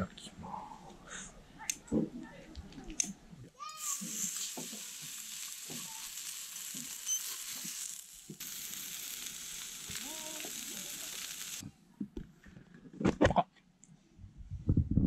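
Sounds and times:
meat sizzling in a frying pan: 0:03.8 - 0:11.6.

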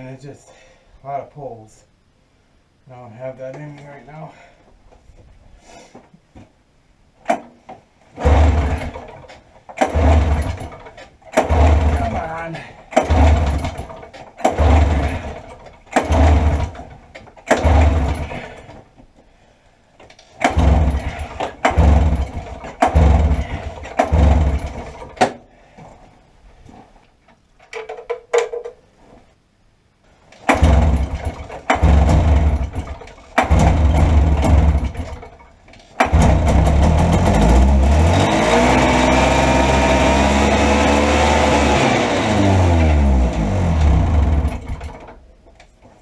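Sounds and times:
snowmobile engine cranking: 0:08.1 - 0:18.7, 0:20.3 - 0:25.3, 0:30.4 - 0:45.2
two-stroke engine running: 0:08.2 - 0:09.2, 0:09.8 - 0:10.8, 0:11.4 - 0:12.3, 0:13.0 - 0:16.8, 0:17.6 - 0:18.4, 0:20.4 - 0:25.0, 0:30.5 - 0:35.2, 0:36.0 - 0:45.0.

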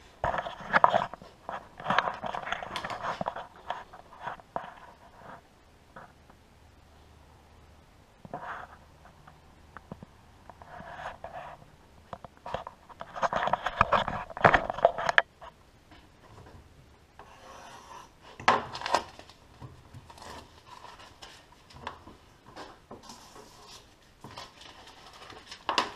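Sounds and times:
vinyl sheets rubbing and rustling: 0:00.0 - 0:05.4, 0:08.3 - 0:09.0, 0:10.5 - 0:11.7, 0:12.4 - 0:15.6, 0:17.2 - 0:25.9
paper handling sounds: 0:00.2 - 0:05.4, 0:18.4 - 0:25.9.

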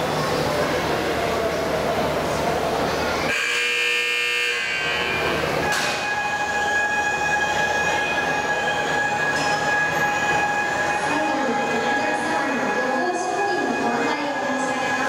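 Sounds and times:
crowd murmur: 0:00.0 - 0:15.0
electronic warning buzzer: 0:03.3 - 0:05.2.

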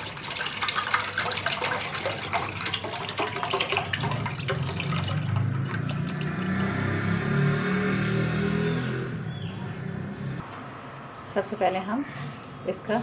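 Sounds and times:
milk pouring into saucepan: 0:00.0 - 0:06.8.

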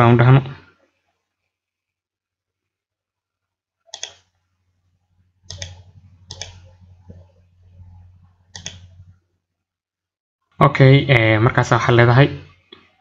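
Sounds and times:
faint low hum: 0:02.6 - 0:09.8
computer mouse clicks: 0:03.9 - 0:04.3, 0:05.5 - 0:07.4, 0:08.5 - 0:09.1.

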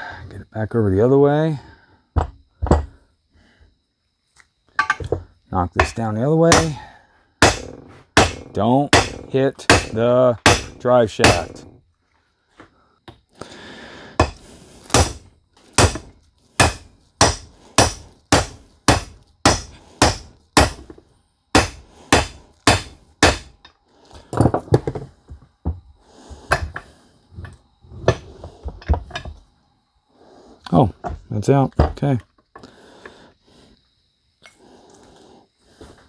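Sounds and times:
metal knocks and clinks: 0:04.7 - 0:05.2, 0:24.3 - 0:25.1
hammer striking metal: 0:05.8 - 0:06.8, 0:07.4 - 0:11.6, 0:15.8 - 0:20.8, 0:21.6 - 0:23.5.

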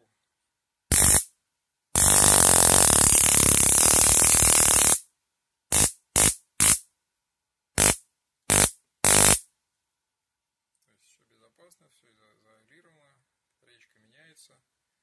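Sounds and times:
electric arc zapping: 0:00.9 - 0:01.3, 0:02.0 - 0:05.0, 0:05.7 - 0:06.8, 0:07.8 - 0:09.4.

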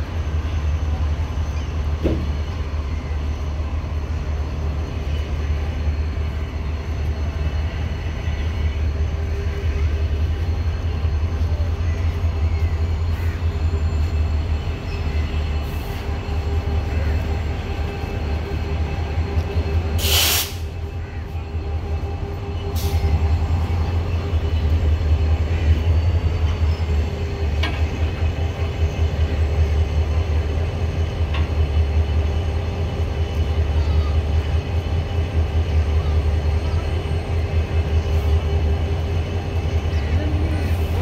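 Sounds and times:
diesel locomotive engine rumbling: 0:00.0 - 0:41.0
air release hiss: 0:20.0 - 0:20.7.

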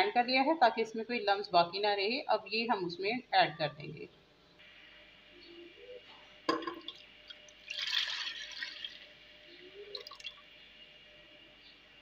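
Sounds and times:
liquid pouring into pot: 0:06.5 - 0:09.1, 0:09.9 - 0:10.4.

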